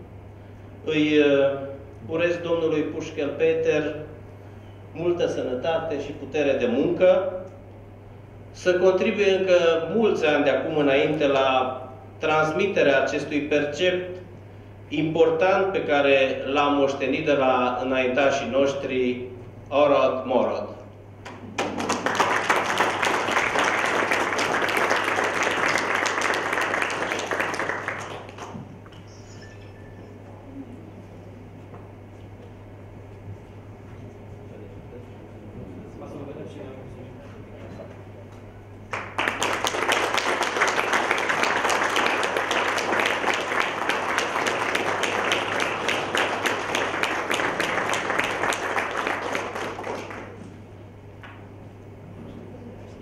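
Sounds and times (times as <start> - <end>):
audience applauding: 21.3 - 28.8, 38.9 - 50.5.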